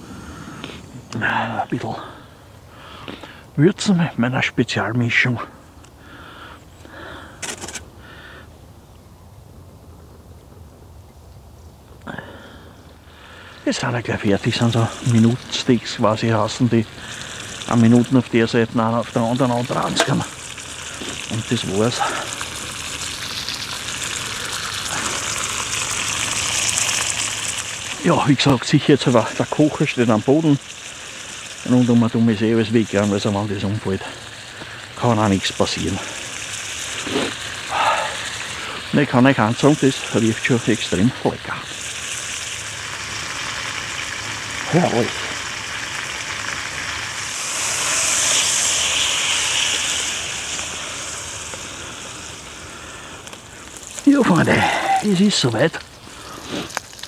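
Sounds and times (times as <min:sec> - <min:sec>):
steaks sizzling in a frying pan: 0:13.7 - 0:57.0.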